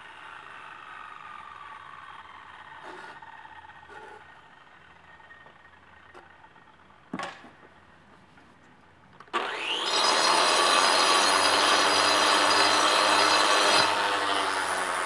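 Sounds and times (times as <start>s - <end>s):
angle grinder cutting stone: 9.3s - 15.0s.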